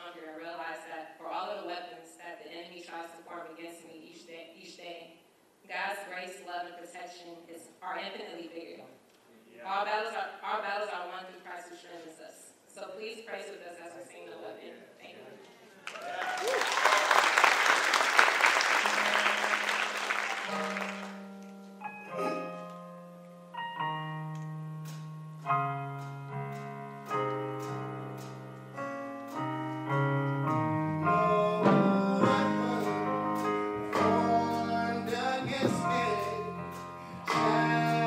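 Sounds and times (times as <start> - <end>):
audience applause: 15.8 - 21.2
slow piano chords: 18.7 - 38.0.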